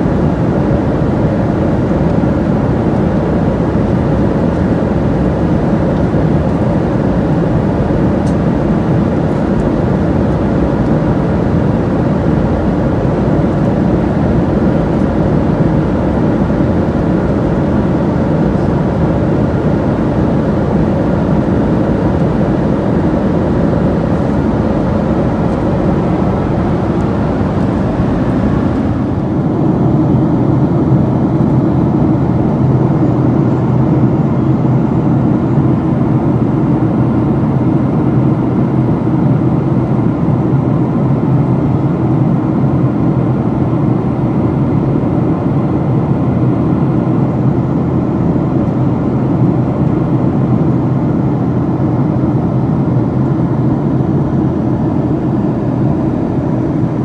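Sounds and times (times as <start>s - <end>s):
airliner cabin noise: 0.0s - 57.0s.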